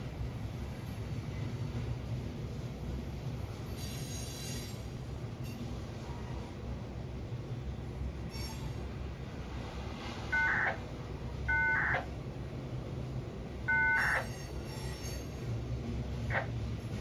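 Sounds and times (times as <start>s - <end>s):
radio dial tone beeps: 10.4s - 10.8s, 11.5s - 12.0s, 13.7s - 14.2s.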